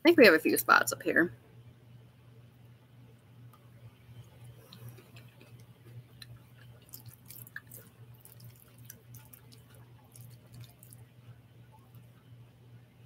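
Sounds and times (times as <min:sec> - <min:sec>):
steady low hum: 0:00.0 - 0:13.0
chewing with wet mouth clicks: 0:04.2 - 0:11.0.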